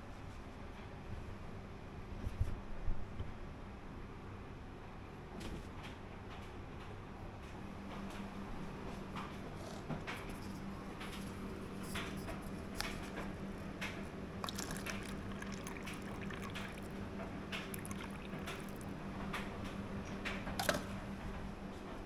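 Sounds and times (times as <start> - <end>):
steady low hum: 7.2 - 22.0
water running into paper cup: 14.4 - 17.0, 17.6 - 19.0.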